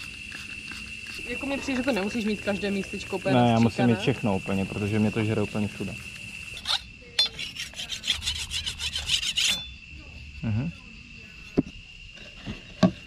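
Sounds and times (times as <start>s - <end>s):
blade rasping on sharpening stone: 6.6s - 9.8s.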